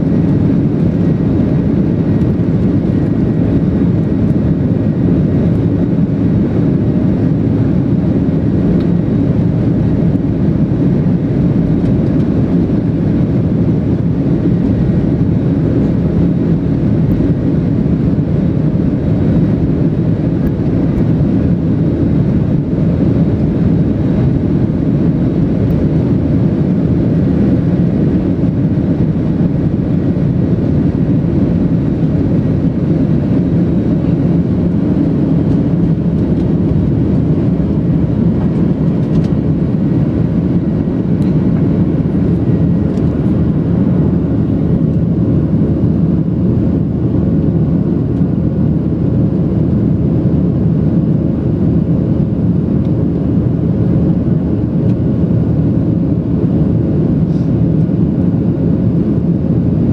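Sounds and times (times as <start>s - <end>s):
jet engines roaring on takeoff: 0.0s - 59.9s.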